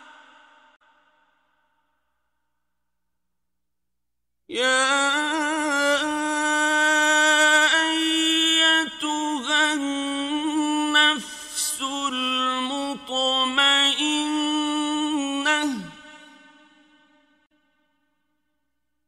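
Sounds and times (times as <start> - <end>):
man chanting recitation: 4.5 - 16.8.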